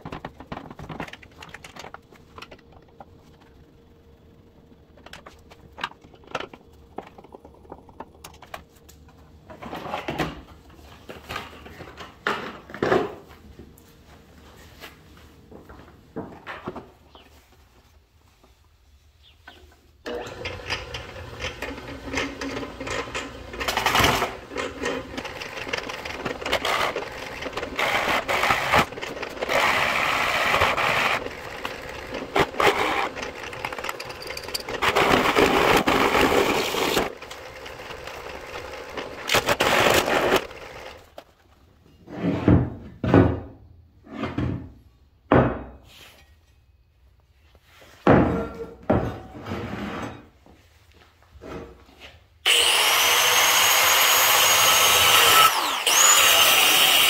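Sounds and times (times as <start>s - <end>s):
drill press boring into wood: 20.1s - 41.0s, 52.5s - 57.0s.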